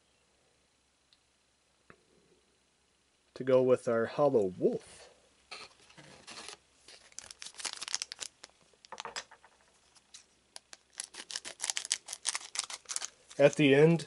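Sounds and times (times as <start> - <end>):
foil card pack crinkling: 6.2 - 9.1, 9.9 - 13.9.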